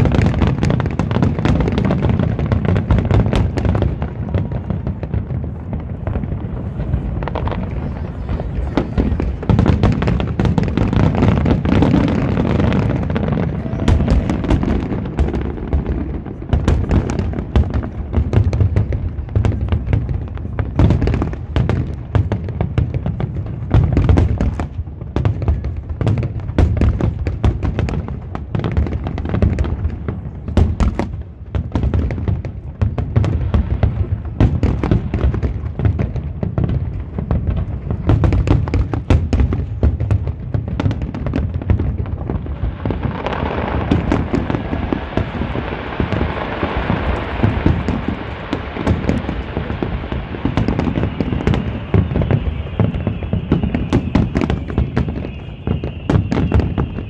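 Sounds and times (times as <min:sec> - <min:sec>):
fireworks booming and crackling: 0:00.0 - 0:57.0.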